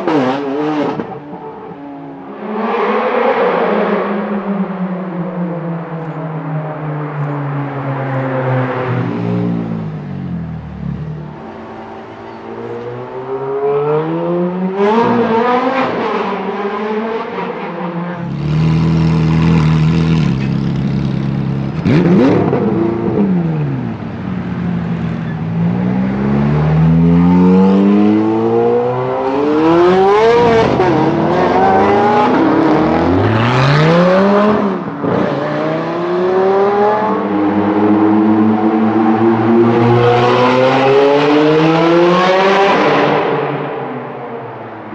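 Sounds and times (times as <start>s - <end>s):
sports car engine revving: 18.2s - 43.7s.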